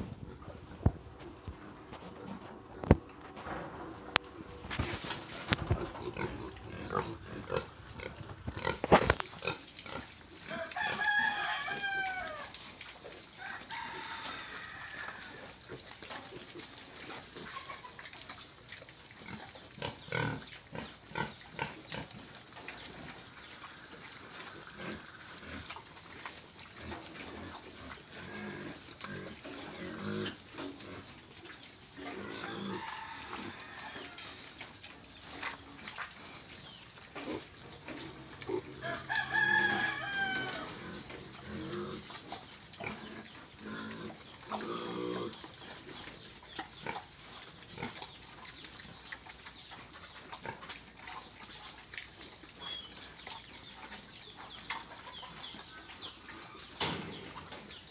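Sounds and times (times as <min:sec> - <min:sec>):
piglet squealing: 0:52.6 - 0:53.7.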